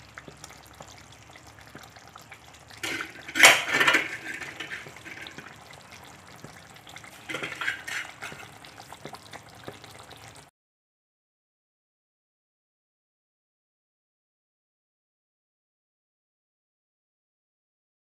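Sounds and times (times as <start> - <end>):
curry bubbling and simmering: 0.0 - 10.5
low crackle: 0.0 - 10.5.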